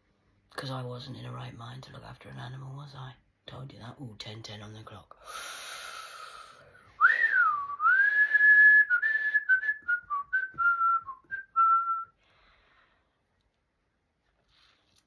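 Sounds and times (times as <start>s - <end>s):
person whistling: 7.0s - 12.2s.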